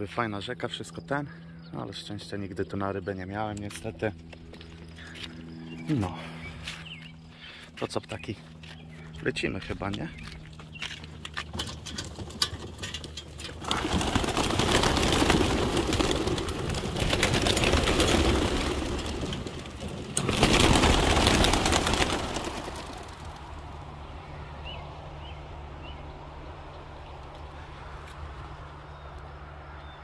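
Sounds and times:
many wings flapping: 11.5 - 24.0.

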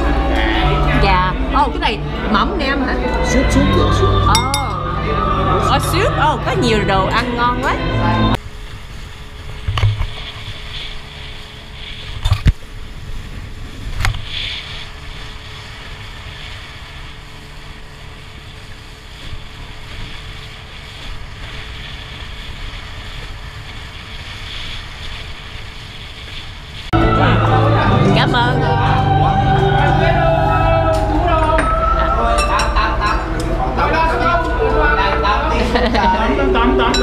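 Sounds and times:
low machinery rumble: 0.0 - 26.1, 26.7 - 37.0
spoons clinking on bowls: 4.3 - 4.9.

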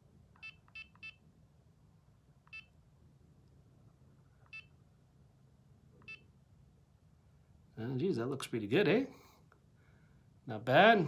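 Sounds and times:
faint low hum: 0.0 - 11.0
electronic key beeps: 0.4 - 1.2.

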